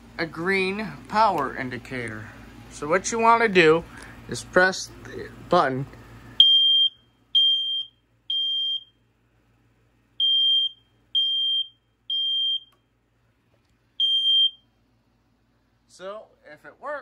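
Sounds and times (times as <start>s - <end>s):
smoke alarm beeping: 6.4s - 9.0s, 10.2s - 12.9s, 14.0s - 14.8s.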